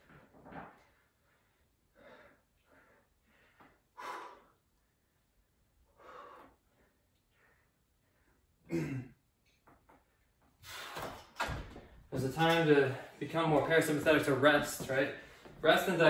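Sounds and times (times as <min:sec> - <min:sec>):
man breathing: 0:00.8 - 0:08.7, 0:10.0 - 0:11.4, 0:15.1 - 0:15.6.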